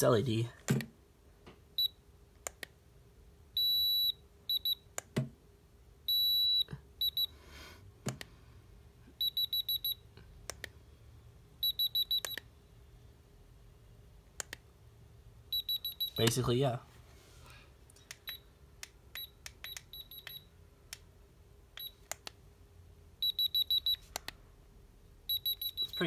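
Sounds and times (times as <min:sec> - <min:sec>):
thermometer beeping: 0:03.6 - 0:04.9, 0:06.1 - 0:07.3, 0:09.2 - 0:10.1, 0:11.6 - 0:12.5, 0:15.5 - 0:16.4, 0:18.1 - 0:18.5, 0:19.2 - 0:20.5, 0:21.8 - 0:22.1, 0:23.2 - 0:24.3, 0:25.2 - 0:26.0
quick alarm beeps: 0:06.1 - 0:07.3, 0:09.2 - 0:10.0, 0:11.6 - 0:12.4, 0:15.5 - 0:16.3, 0:23.2 - 0:24.0, 0:25.3 - 0:26.0.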